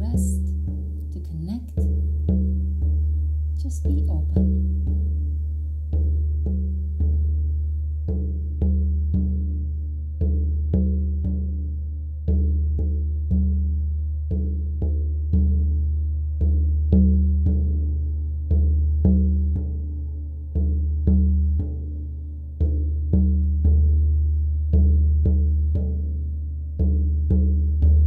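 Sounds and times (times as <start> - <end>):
deep drum beats: 0.0 - 28.0.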